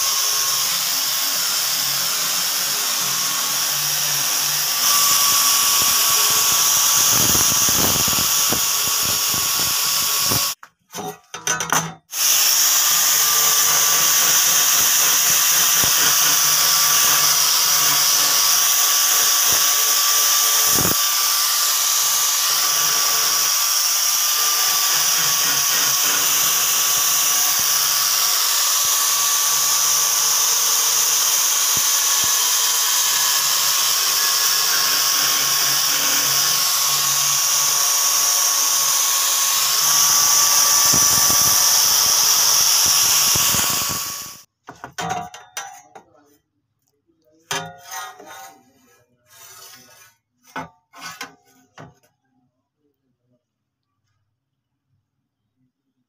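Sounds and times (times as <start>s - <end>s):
angle grinder motor whine: 0.0s - 10.6s, 12.2s - 44.5s
abrasive disc scraping steel: 47.5s - 51.9s.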